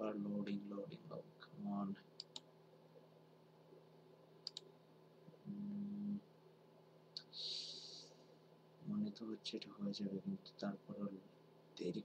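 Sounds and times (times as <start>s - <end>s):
faint electrical hum: 0.0s - 12.0s
mouse double-click: 4.4s - 4.7s.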